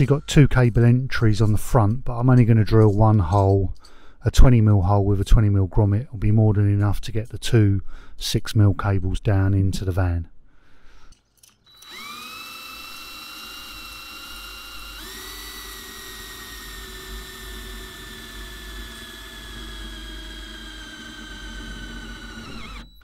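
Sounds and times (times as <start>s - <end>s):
drill motor whine cutting metal: 11.7s - 23.0s.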